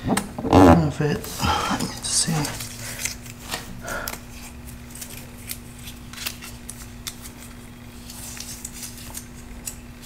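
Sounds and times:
faint hum: 0.0 - 10.0
adhesive tape crinkling and clicking: 2.2 - 10.0.

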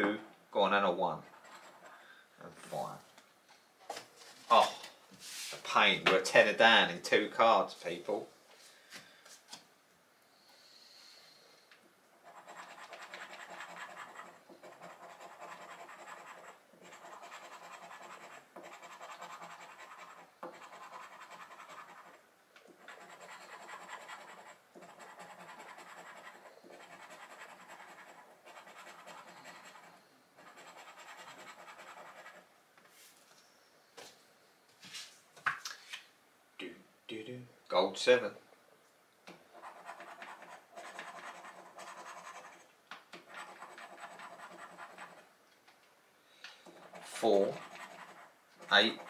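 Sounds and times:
scratch card being scratched: 12.2 - 32.4, 39.5 - 45.3, 46.6 - 49.0.

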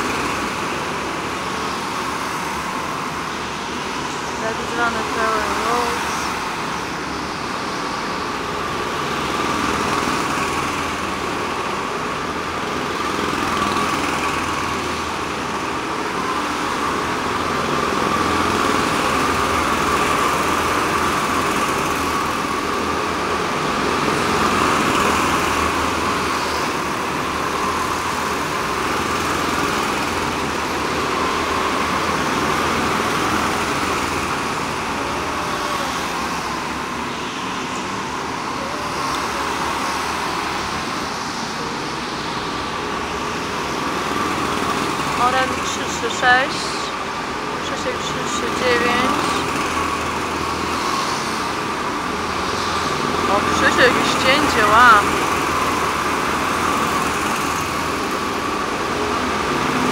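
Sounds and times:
go-kart engines buzzing: 0.0 - 59.9.

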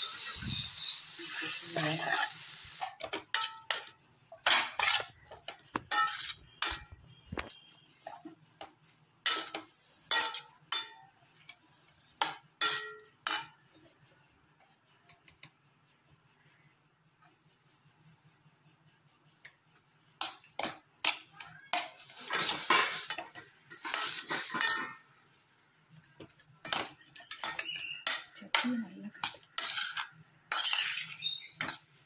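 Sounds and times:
metal spoon scraping steel bowl: 4.5 - 7.0, 21.0 - 25.0, 26.7 - 31.9.

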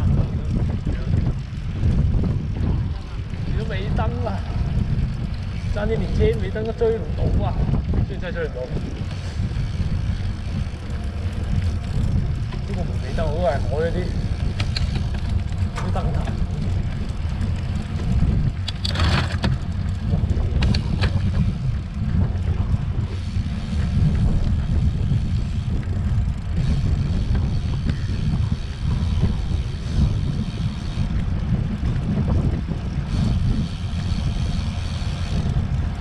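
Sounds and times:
wind buffeting microphone: 0.0 - 36.0.

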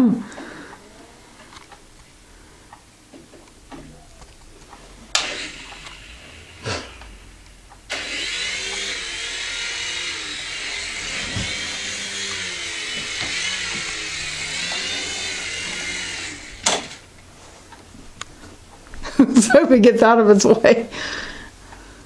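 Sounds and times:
toy helicopter rotor whirring: 5.1 - 7.2, 7.9 - 17.0.

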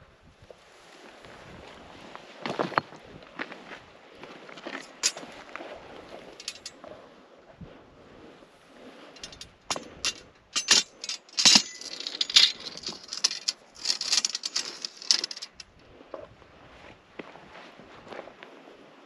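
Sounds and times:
gear clinking and rattling: 4.6 - 5.3, 6.2 - 6.8, 9.1 - 15.7.

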